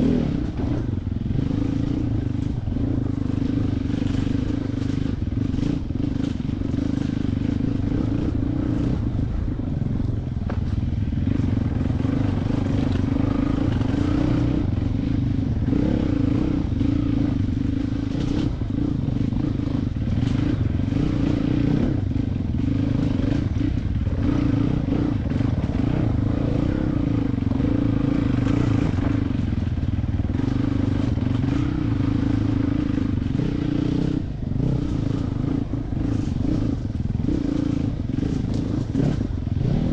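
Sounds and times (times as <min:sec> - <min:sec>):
dirt bike engine running: 0:00.0 - 0:39.9.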